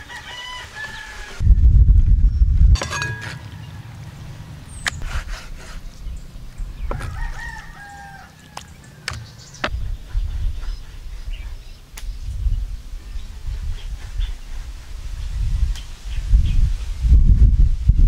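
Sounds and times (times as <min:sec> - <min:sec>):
rooster crowing: 0:00.0 - 0:01.4, 0:07.0 - 0:09.1.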